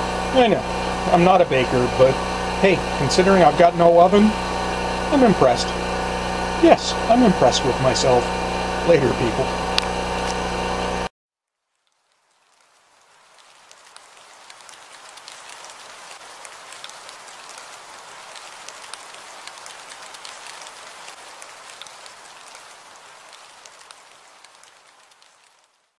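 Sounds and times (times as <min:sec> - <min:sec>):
rain hiss: 0:00.0 - 0:11.1, 0:11.8 - 0:25.9
raindrop ticks: 0:11.8 - 0:25.8.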